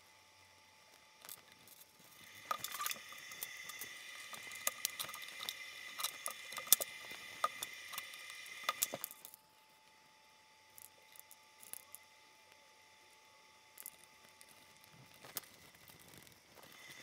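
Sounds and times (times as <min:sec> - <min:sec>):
faint high whine: 0:00.0 - 0:17.0
plastic parts clicking and tapping: 0:01.2 - 0:09.4.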